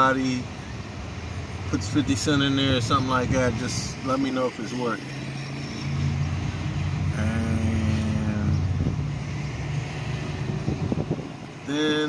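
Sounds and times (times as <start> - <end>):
vehicle engine drone: 0.0 - 12.0.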